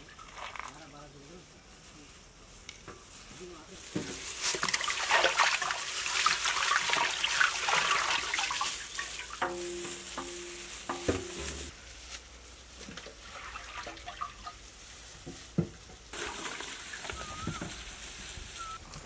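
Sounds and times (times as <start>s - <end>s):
steady hiss: 8.2s - 12.9s, 14.5s - 19.0s
gloved hands rustling and scraping: 8.5s - 13.2s, 14.6s - 19.0s.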